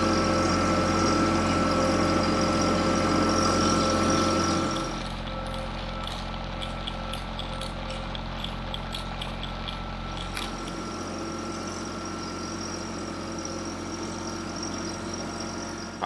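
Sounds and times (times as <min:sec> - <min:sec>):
diesel tractor engine running: 0:00.0 - 0:16.0
light regular ticking: 0:04.6 - 0:10.8.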